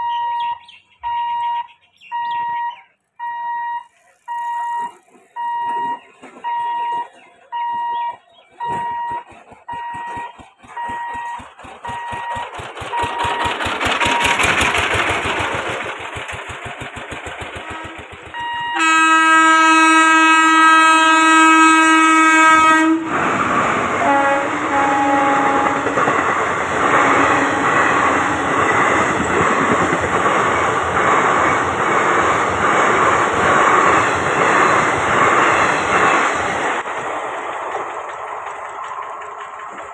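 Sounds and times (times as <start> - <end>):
level-crossing alarm beeping: 0.0 - 14.7, 18.3 - 19.0
wheels clattering on rails: 3.8 - 20.3, 23.2 - 39.9
train approaching rumble: 3.8 - 39.9
locomotive horn blast: 17.6 - 23.2, 24.0 - 26.2, 26.8 - 28.8.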